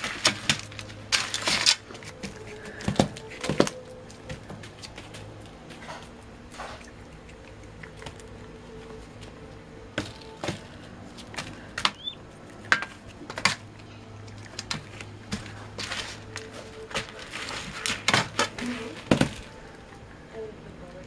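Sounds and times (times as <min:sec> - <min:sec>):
beak tapping on cage floor: 0:02.2 - 0:13.9.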